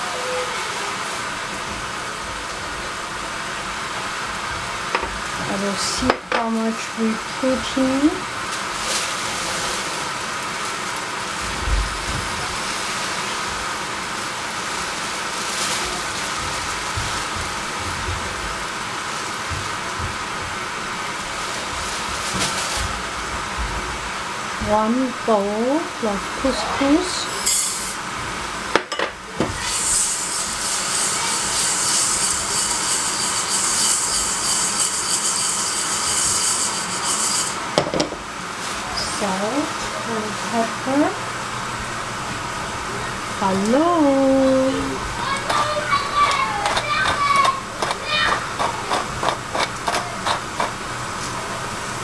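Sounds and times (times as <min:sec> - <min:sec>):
gas stovetop hissing: 0:00.0 - 0:52.0
couscous sizzling in hot oil: 0:06.7 - 0:17.8, 0:29.5 - 0:37.8, 0:44.6 - 0:52.0.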